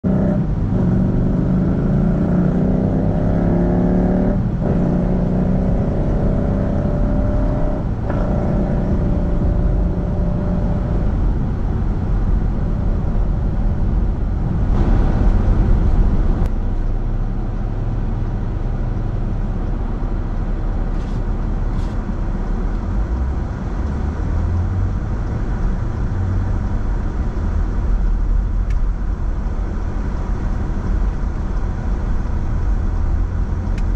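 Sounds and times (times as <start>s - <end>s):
car engine accelerating: 0.0s - 33.9s
traffic noise: 0.0s - 33.9s
tyre and road noise: 0.0s - 33.9s.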